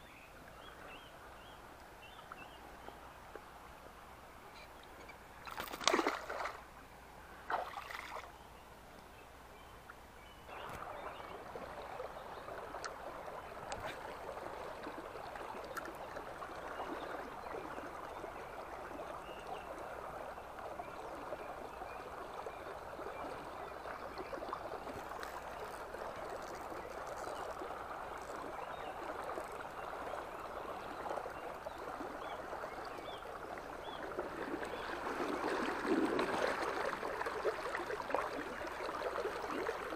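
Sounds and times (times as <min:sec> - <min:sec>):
river water flowing: 0:00.0 - 0:39.9
brief splashes: 0:05.4 - 0:06.6, 0:07.5 - 0:08.3.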